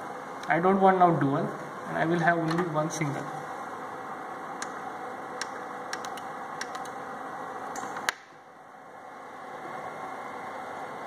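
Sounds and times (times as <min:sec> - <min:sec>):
steady background hum: 0:00.0 - 0:11.0
push buttons clicking: 0:05.4 - 0:07.0.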